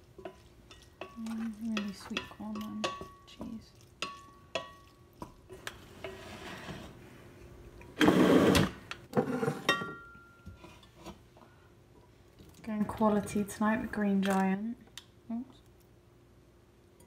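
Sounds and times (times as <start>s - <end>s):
metal utensil clinking on pan: 0.2s - 4.9s.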